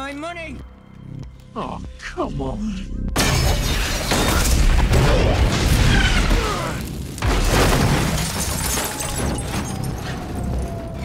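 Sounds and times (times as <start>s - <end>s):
explosion blast: 3.2s - 9.9s
rumbling debris: 3.2s - 11.0s.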